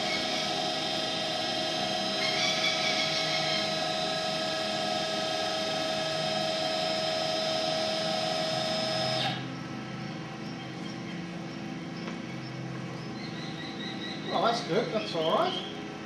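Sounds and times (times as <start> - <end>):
stepper motors whining: 0.0 - 10.1.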